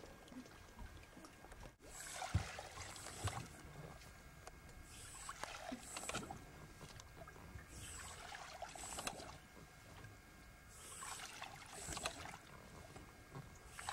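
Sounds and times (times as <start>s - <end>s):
paddle strokes in water: 0.0s - 13.9s.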